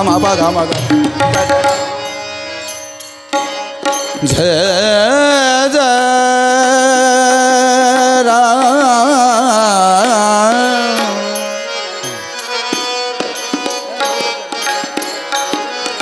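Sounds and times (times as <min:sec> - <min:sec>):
tabla strokes: 0:00.0 - 0:05.3, 0:07.0 - 0:16.0
harmonium: 0:00.0 - 0:16.0.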